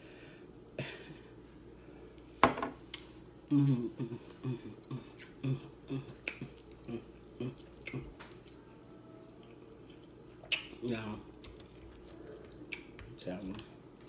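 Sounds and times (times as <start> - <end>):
woman mumbling while eating: 3.5 - 8.2.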